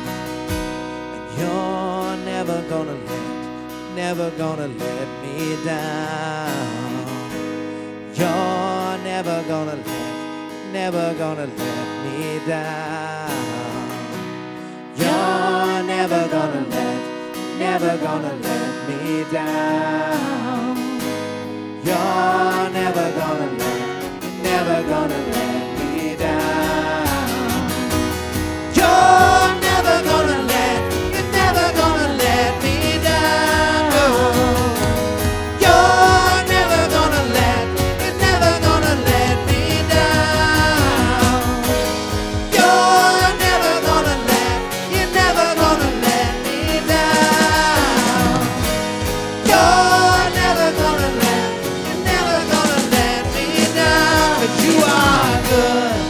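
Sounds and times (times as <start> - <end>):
acoustic guitar strummed: 0.0 - 56.0
women singing: 15.0 - 21.0, 21.8 - 28.1, 28.7 - 56.0
steady low beat: 25.8 - 51.2.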